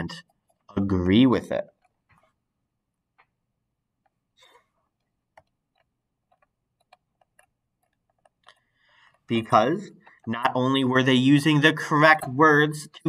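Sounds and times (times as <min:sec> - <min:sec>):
stylus tapping on drawing tablet: 0:05.0 - 0:10.7.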